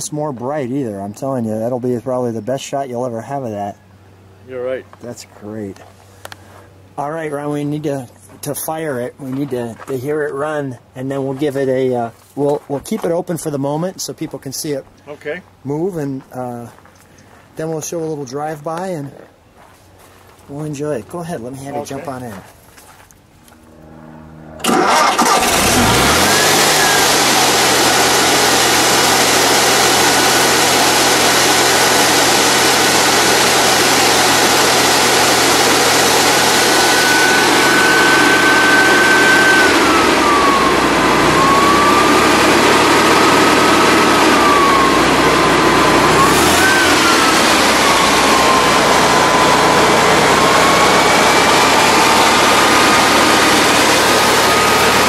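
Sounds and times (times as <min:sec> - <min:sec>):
cooling fan whine: 0:00.0 - 0:55.0
car engine starting and running: 0:23.4 - 0:55.0
engine revving: 0:23.4 - 0:55.0.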